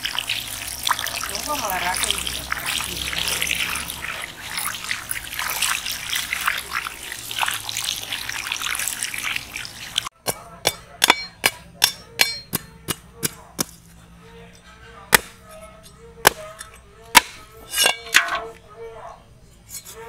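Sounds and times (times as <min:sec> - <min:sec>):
hose water splashing: 0:00.0 - 0:10.2.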